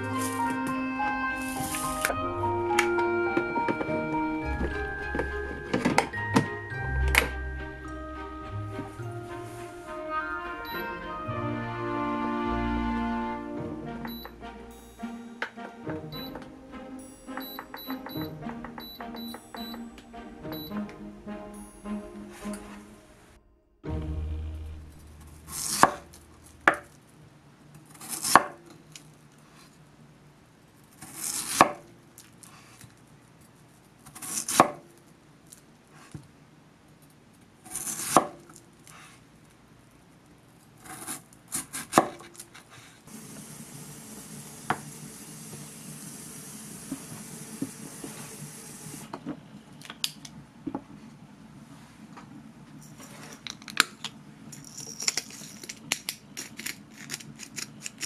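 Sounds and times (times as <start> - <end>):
steady hiss: 43.0 - 49.1.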